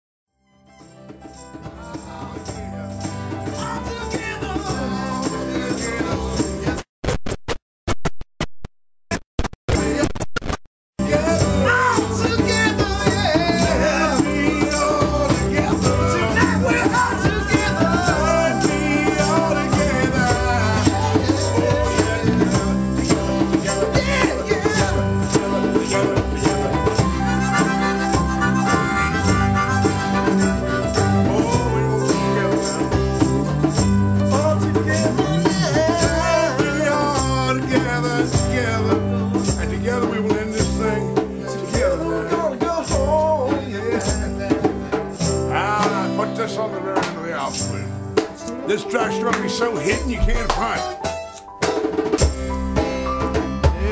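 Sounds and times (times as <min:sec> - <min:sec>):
band music with bass and drums: 0:00.7 - 0:06.9, 0:11.0 - 0:53.9.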